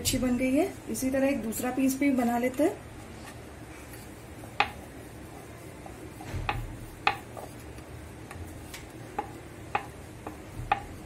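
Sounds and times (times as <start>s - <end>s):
wood knocking on wood: 9.2s - 10.9s.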